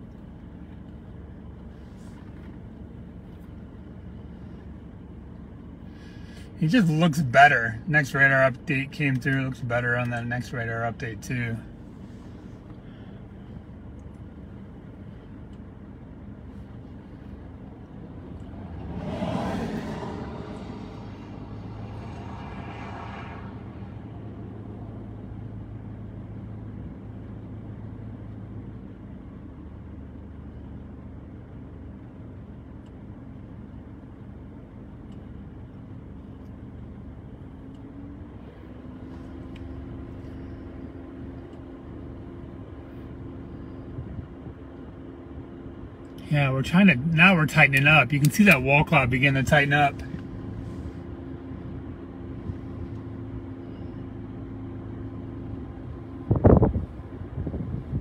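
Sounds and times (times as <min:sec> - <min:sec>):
vehicle engine idling: 0:00.0 - 0:58.0
vehicle passing by: 0:18.3 - 0:25.0.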